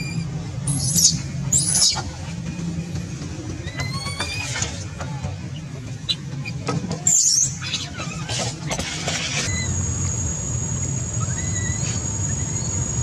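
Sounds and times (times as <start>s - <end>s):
baby monkey crying: 0.0s - 2.1s, 3.6s - 4.8s, 11.2s - 12.8s
low steady rumble: 0.0s - 13.0s.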